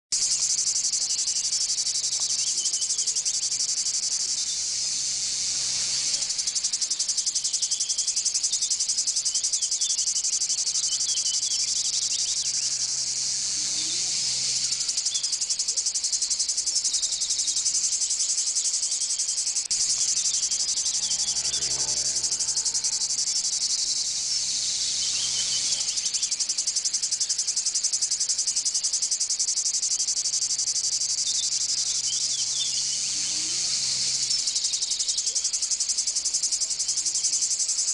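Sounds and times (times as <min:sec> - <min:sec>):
insect chorus buzzing: 0:00.1 - 0:37.9.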